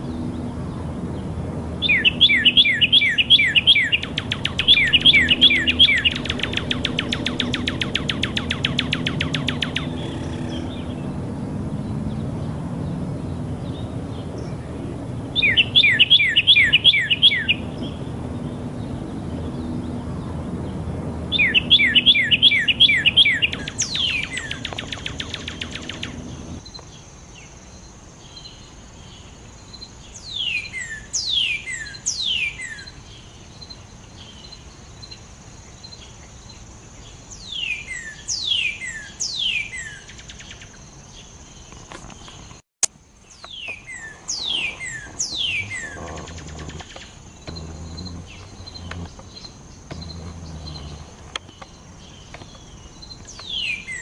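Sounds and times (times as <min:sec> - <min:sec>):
low rumble: 0:04.0 - 0:15.9, 0:45.1 - 0:51.4.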